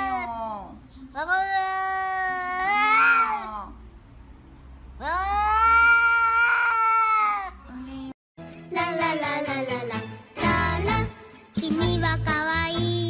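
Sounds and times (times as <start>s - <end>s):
cat yowling: 1.4s - 3.6s, 5.1s - 7.5s.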